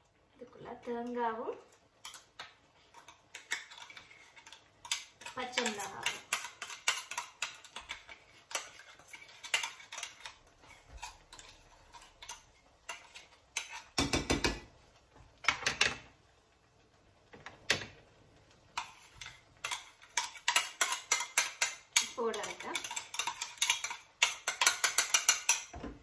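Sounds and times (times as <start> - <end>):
metal spoon scraping steel jar: 2.9 - 14.0, 18.8 - 25.7.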